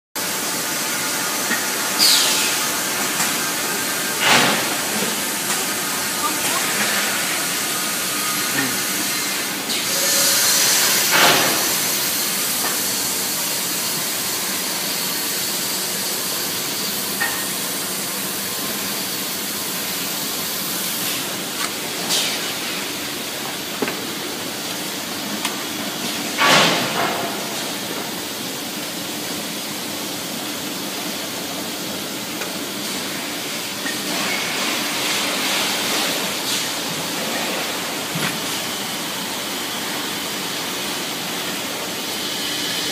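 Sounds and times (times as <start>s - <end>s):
steam machine hissing: 0.5s - 21.5s.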